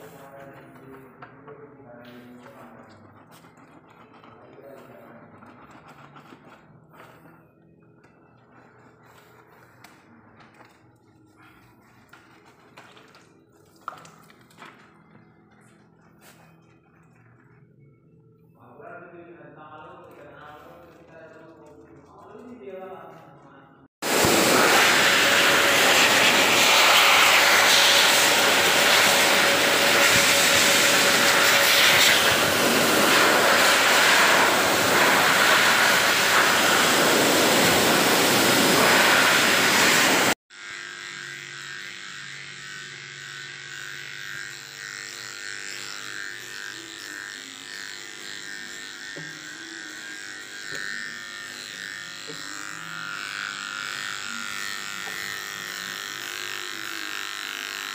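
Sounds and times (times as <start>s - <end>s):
pet hair dryer rush of air: 24.0s - 42.7s, 43.5s - 57.1s
electric clippers humming: 24.0s - 57.9s.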